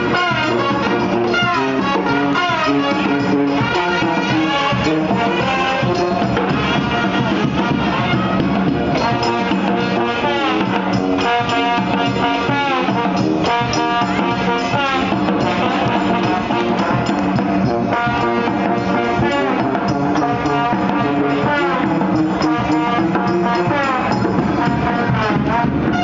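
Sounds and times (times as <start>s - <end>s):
marching drum beat: 0.0s - 26.0s
street brass band playing: 0.0s - 26.0s.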